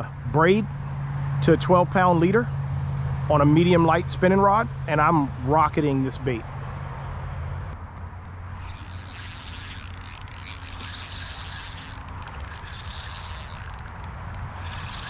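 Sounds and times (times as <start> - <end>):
fishing reel whirring: 8.5 - 15.0.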